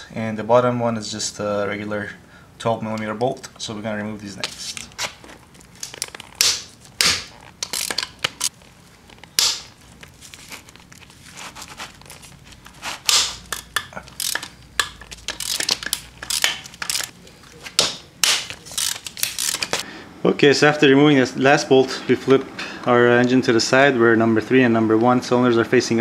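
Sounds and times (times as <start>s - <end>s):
hand ratchet clicking: 13.1s - 17.1s, 18.6s - 19.8s.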